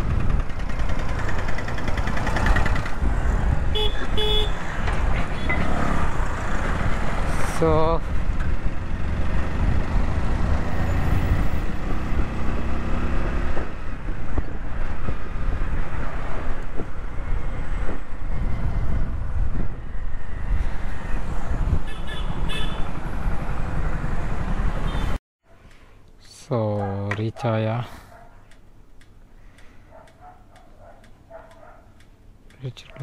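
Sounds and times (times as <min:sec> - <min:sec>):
motorcycle engine: 0:00.0 - 0:07.3, 0:08.1 - 0:13.9
wind rushing over microphone: 0:00.0 - 0:25.1
passing road traffic: 0:00.0 - 0:33.0.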